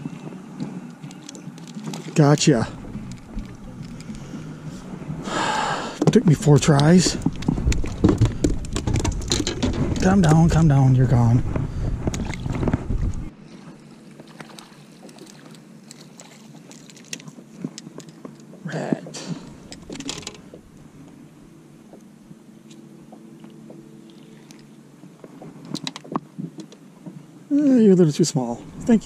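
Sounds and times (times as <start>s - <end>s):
fish handling clicks and rustles: 0.0s - 4.5s, 6.0s - 10.7s, 14.2s - 18.6s, 19.3s - 20.6s, 22.6s - 27.7s
waves lapping boat hull: 0.0s - 29.0s.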